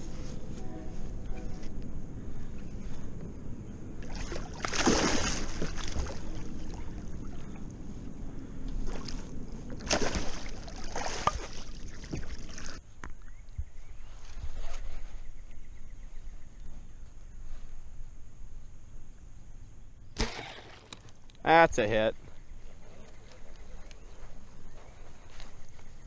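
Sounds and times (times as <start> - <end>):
fish thrashing and splashing: 4.0 - 7.5, 8.8 - 12.8.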